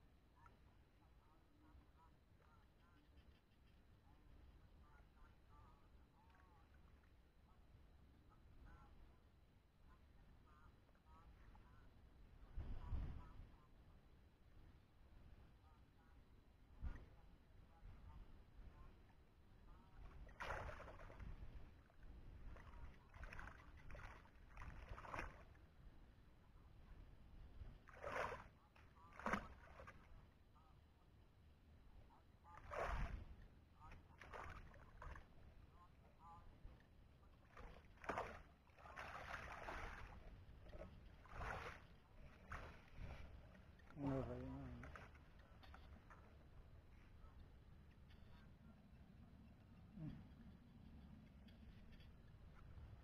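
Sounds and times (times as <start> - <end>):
water splashing: 20.0 - 21.3, 22.6 - 25.6, 27.9 - 28.5, 29.1 - 30.1, 32.5 - 35.3, 37.4 - 46.2.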